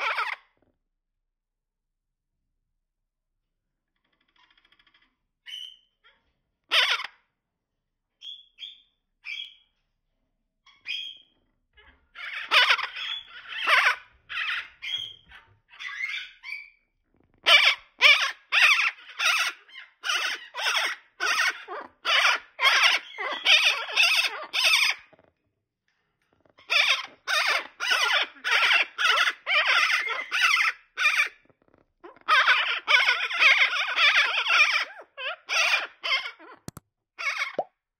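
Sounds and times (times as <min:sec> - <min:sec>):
parakeets calling rapidly: 0:00.0 - 0:00.4, 0:06.7 - 0:07.1, 0:12.2 - 0:16.7, 0:17.4 - 0:25.1, 0:26.6 - 0:31.4, 0:32.0 - 0:37.6.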